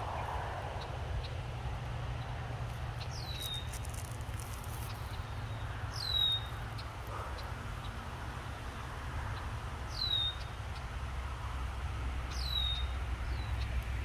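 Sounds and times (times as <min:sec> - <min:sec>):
steady low rumble: 0:00.0 - 0:06.0.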